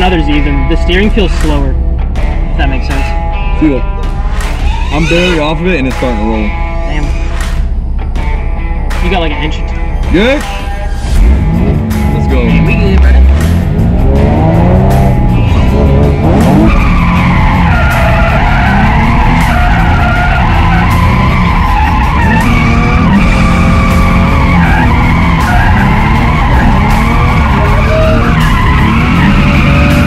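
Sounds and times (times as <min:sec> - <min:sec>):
tyres squealing: 0:04.4 - 0:05.7, 0:15.2 - 0:30.0
car engine revving hard: 0:11.2 - 0:30.0.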